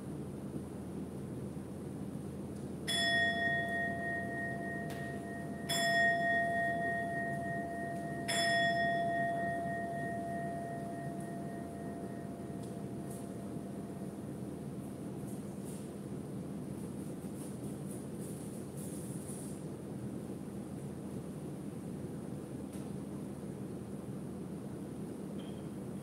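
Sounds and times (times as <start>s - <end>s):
low hum of room noise: 0.0s - 26.0s
bowl bell ringing: 2.9s - 14.1s.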